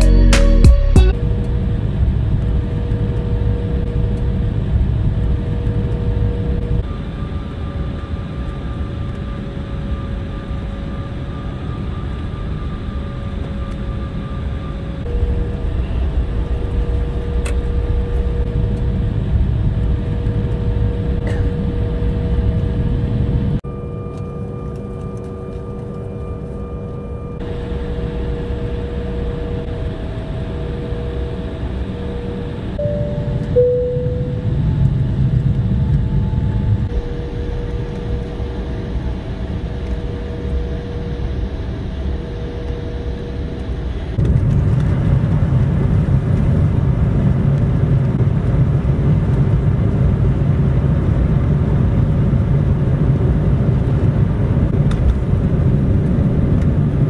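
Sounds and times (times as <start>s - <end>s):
jet engines heard from cabin: 0.4s - 57.0s
thin steady whine: 1.1s - 44.3s.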